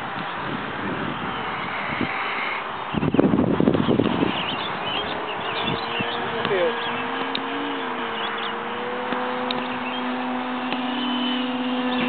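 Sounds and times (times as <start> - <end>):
model airplane motor and propeller: 0.0 - 12.0.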